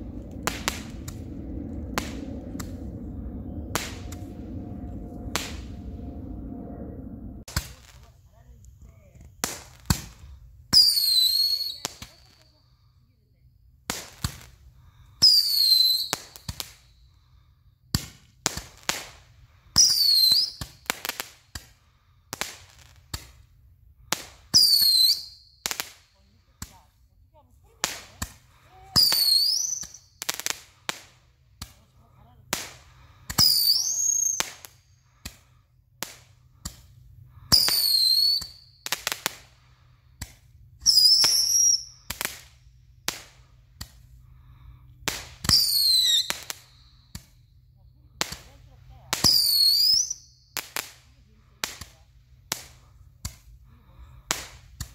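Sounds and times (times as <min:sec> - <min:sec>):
firework whistle: 0:00.0 - 0:07.8, 0:10.7 - 0:12.4, 0:15.2 - 0:16.9, 0:19.8 - 0:20.8, 0:24.5 - 0:26.0, 0:28.9 - 0:30.2, 0:33.3 - 0:35.4, 0:37.4 - 0:39.3, 0:40.8 - 0:42.4, 0:45.4 - 0:47.3, 0:49.2 - 0:50.7
firework pops and crackles: 0:09.2 - 0:12.6, 0:13.8 - 0:16.8, 0:17.9 - 0:27.0, 0:27.8 - 0:39.6, 0:40.2 - 0:44.1, 0:45.0 - 0:47.4, 0:48.2 - 0:53.6, 0:54.2 - 0:54.9.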